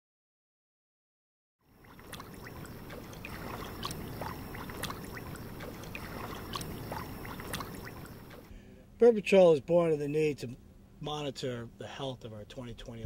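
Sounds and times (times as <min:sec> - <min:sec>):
water-like rush: 0:01.7 - 0:08.5.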